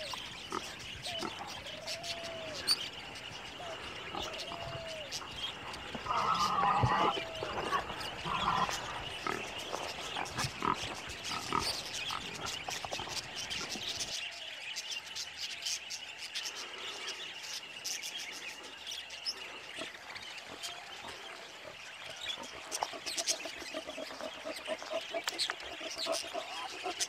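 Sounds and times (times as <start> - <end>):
wild hogs grunting: 0.0 - 14.0.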